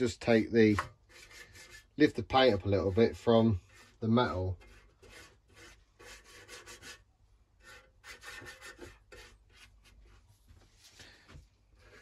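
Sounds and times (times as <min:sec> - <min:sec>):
brush scratching on metal: 0:00.6 - 0:10.2.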